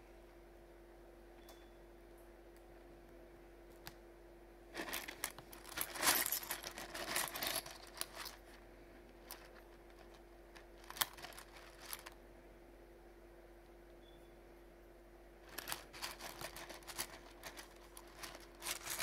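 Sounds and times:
stones clicking and clattering: 4.8s - 8.4s, 10.8s - 12.1s, 15.5s - 19.0s.

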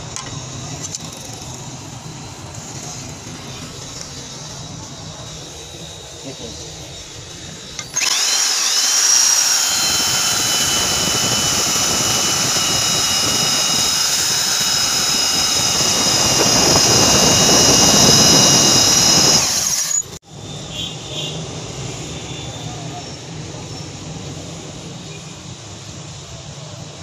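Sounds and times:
belt sander motor whine: 0.1s - 20.2s.

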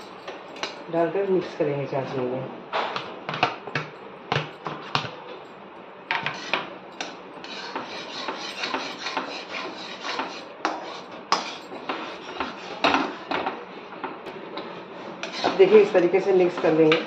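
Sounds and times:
metal spatula scraping pan: 6.2s - 6.7s, 7.4s - 13.5s, 14.6s - 17.0s.

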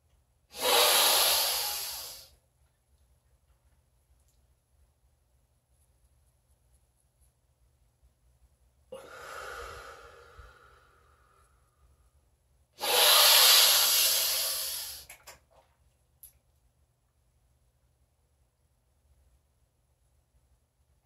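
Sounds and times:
forceful breath out: 0.5s - 2.3s, 9.0s - 11.4s, 12.8s - 15.1s
man breathing in deeply: 0.6s - 2.3s, 8.9s - 12.0s, 12.8s - 15.1s.

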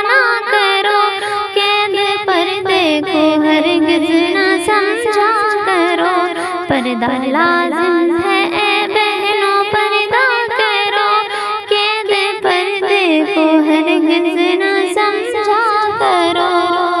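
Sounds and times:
woman singing slow melody: 0.0s - 17.0s.

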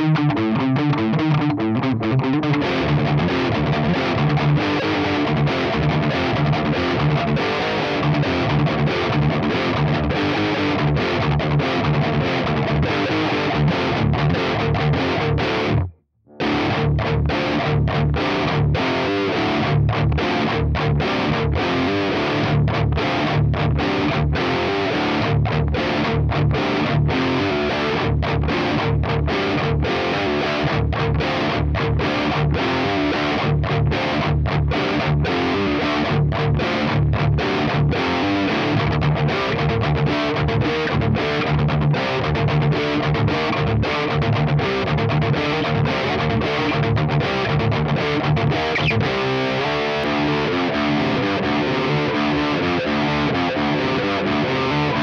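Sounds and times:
distorted electric guitar riff: 0.0s - 55.0s.

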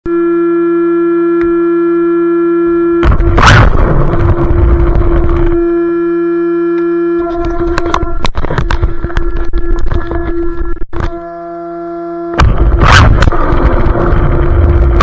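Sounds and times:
steady pitched tone: 0.1s - 15.0s
loud burst of noise: 3.0s - 5.8s, 12.3s - 15.0s
clicks: 6.7s - 11.2s.

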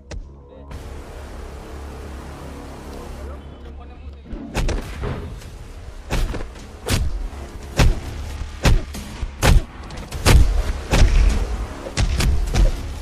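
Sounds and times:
steady low hum: 0.0s - 13.0s
heavy punch strikes: 7.8s - 11.4s.

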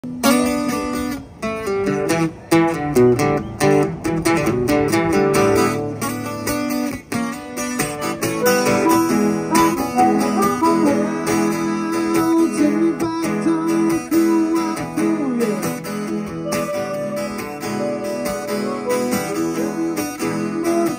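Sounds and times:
acoustic guitar strumming: 0.0s - 20.9s
harmonica bending notes: 7.5s - 12.9s, 15.9s - 20.9s.

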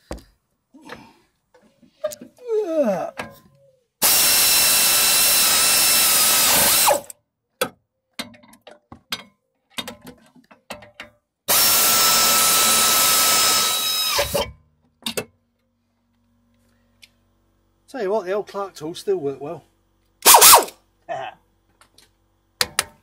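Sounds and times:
power ratchet whining: 4.0s - 7.1s, 11.5s - 14.5s, 20.2s - 20.8s.

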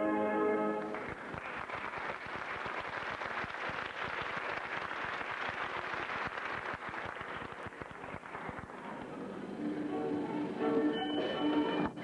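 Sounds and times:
audience applauding: 0.8s - 9.1s.

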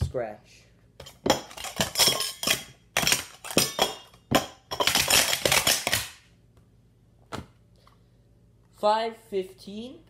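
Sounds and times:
metal cups clanking: 1.0s - 6.0s.

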